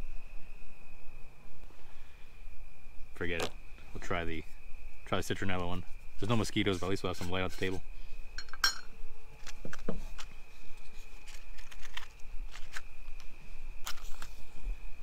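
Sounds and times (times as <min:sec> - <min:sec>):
crickets trilling: 0:00.0 - 0:15.0
camping gear clicks and scrapes: 0:08.4 - 0:14.7.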